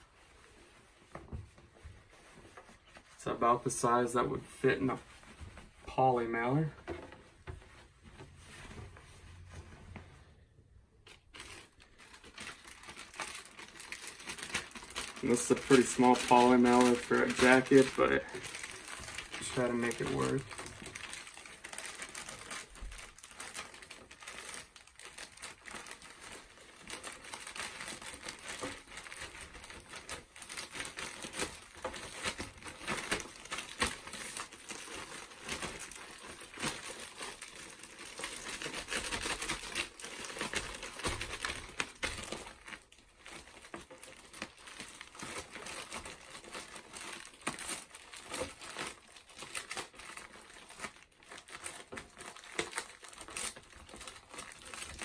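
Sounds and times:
plastic mailer bag crinkling: 11.0s - 55.0s.

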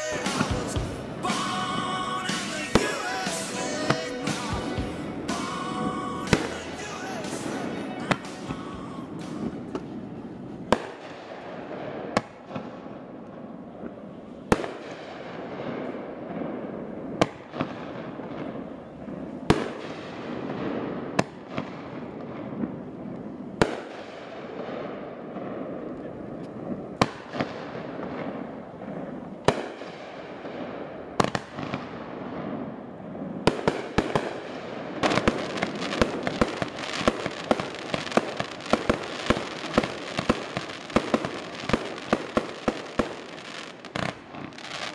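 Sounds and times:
echo of bangs: 0.0s - 13.0s, 26.6s - 44.9s
fireworks bursting with bangs: 0.0s - 44.9s.

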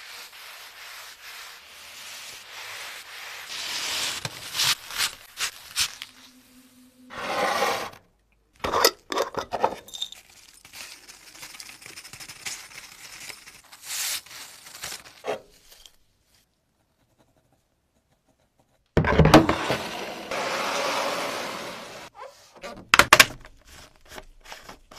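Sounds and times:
sandpaper crinkling: 0.0s - 6.5s, 10.2s - 16.0s
plastic tub knock and scrape: 19.0s - 20.1s.

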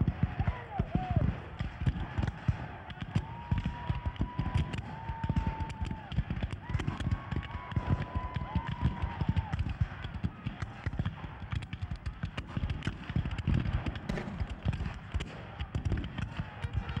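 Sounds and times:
musket fire crackle: 0.1s - 17.0s
heavy low thumps: 14.0s - 16.2s.

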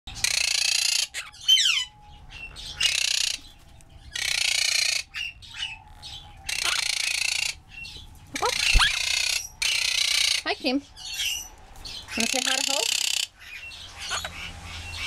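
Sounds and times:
parrot screeching: 0.2s - 3.4s, 4.1s - 7.6s, 8.4s - 10.5s, 12.1s - 13.3s, 14.0s - 14.5s
parrot chirping: 0.2s - 3.5s, 4.1s - 15.0s.

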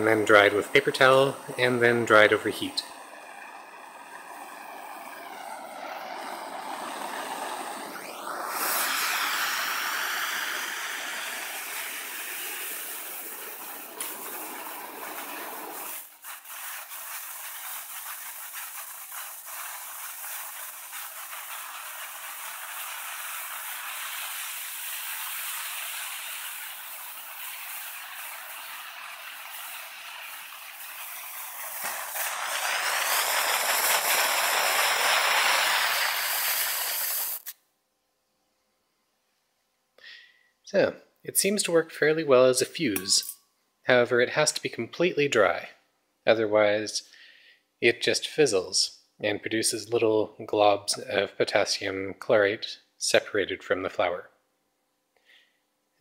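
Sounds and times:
fuse burning with steady hiss: 0.0s - 37.6s, 47.8s - 54.3s.

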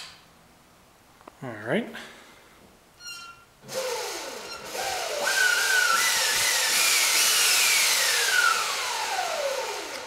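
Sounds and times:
electric motor whine: 3.7s - 10.0s.

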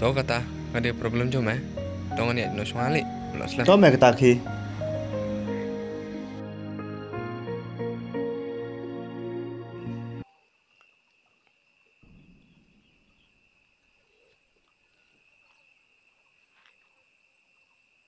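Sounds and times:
high-pitched insect drone: 0.0s - 6.9s
background music: 0.0s - 10.2s.

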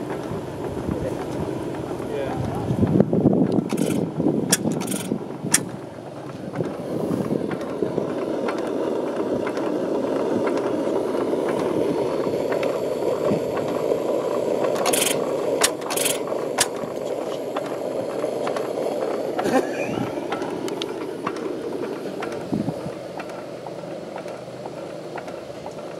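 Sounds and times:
oil engine running: 0.0s - 25.9s
sharp clicks: 3.5s - 5.8s.

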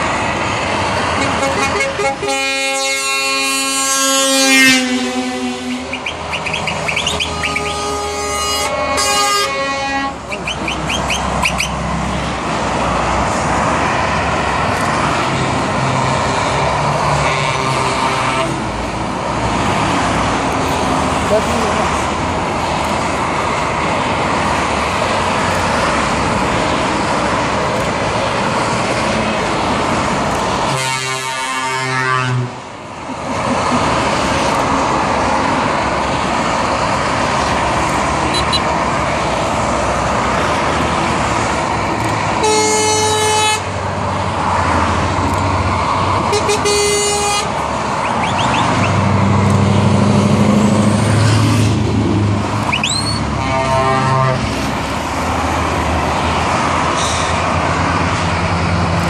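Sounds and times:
motorway traffic noise: 0.0s - 59.0s
truck horn blasts: 1.2s - 11.8s, 16.3s - 18.7s, 30.7s - 32.6s, 38.2s - 38.7s, 42.4s - 43.8s, 46.3s - 49.0s, 53.0s - 54.5s
truck engine passing close: 3.0s - 59.0s.

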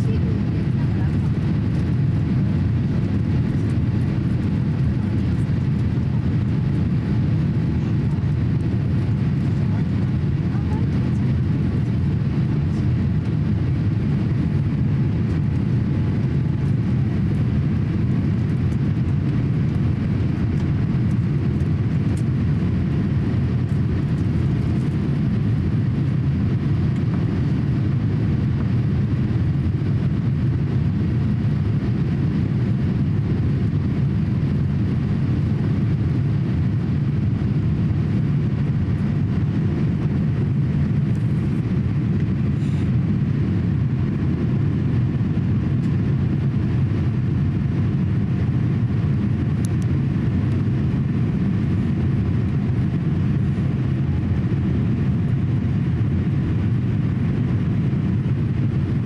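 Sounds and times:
aircraft cabin engine rumble: 0.0s - 59.0s.

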